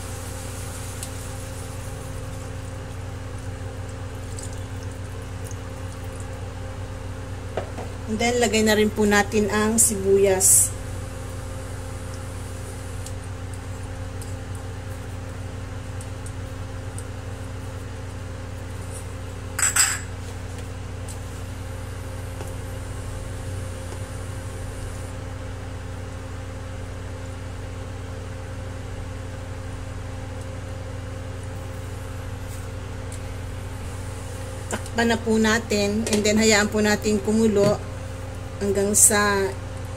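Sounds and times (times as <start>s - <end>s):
low electrical hum: 0.0s - 39.9s
bowl clinking on stone countertop: 19.6s - 20.1s.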